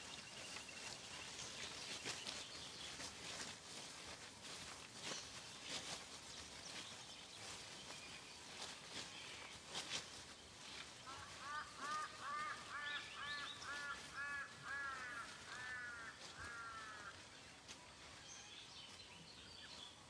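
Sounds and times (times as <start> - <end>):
bird calling harsh notes: 11.0 - 17.2.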